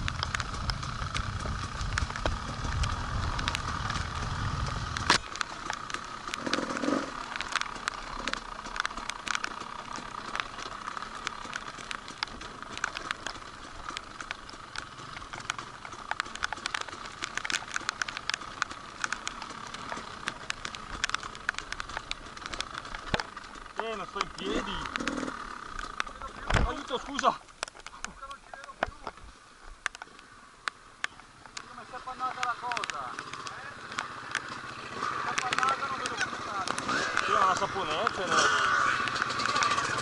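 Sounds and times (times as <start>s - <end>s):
crackles and clicks: 0.0s - 40.0s
motorcycle engine running: 0.0s - 40.0s.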